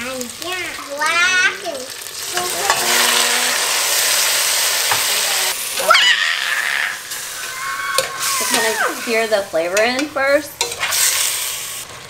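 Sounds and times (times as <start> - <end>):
meat sizzling in a pot: 0.0 - 12.0
utensils knocking on pot: 9.7 - 10.9.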